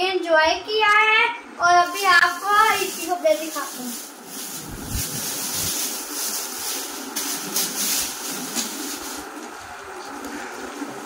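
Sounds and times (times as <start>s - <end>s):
plastic bag rustling: 1.8s - 10.2s.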